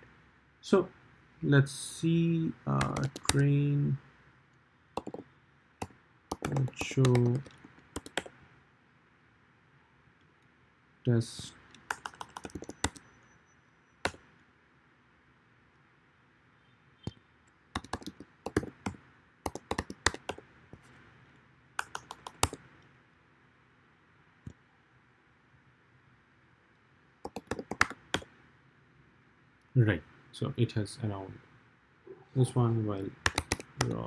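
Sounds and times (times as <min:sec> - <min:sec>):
computer keyboard typing: 0:02.8 - 0:03.5, 0:05.0 - 0:08.4, 0:11.6 - 0:13.0, 0:17.8 - 0:20.4, 0:21.8 - 0:22.6, 0:27.2 - 0:28.3, 0:33.2 - 0:34.0.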